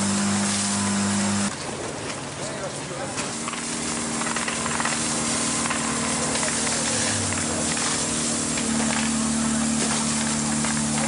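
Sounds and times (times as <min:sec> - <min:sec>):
engine hum: 0:00.0 - 0:11.0
constant hiss: 0:02.5 - 0:11.0.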